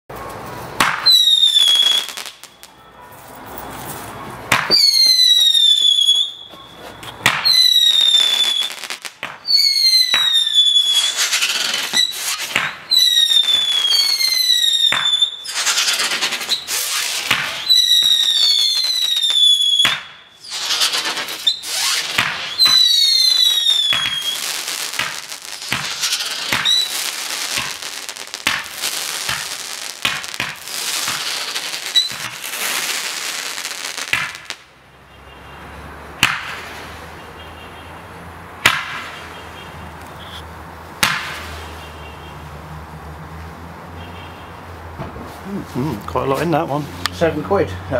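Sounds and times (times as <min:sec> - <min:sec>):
firework crackling: 0:00.2 - 0:02.8, 0:04.5 - 0:34.8
firework whistling shots: 0:00.8 - 0:02.7, 0:04.5 - 0:34.6.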